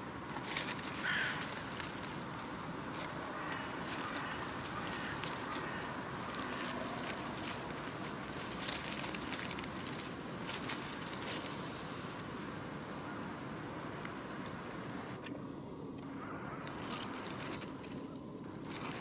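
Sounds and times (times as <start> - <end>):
steady background rush: 0.0 - 11.8
hedgehog rustling in leaves: 0.0 - 12.5, 16.5 - 19.0.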